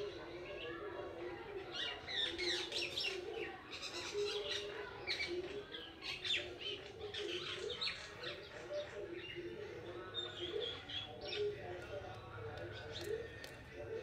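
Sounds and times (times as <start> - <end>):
birds chirping: 1.8 - 14.0.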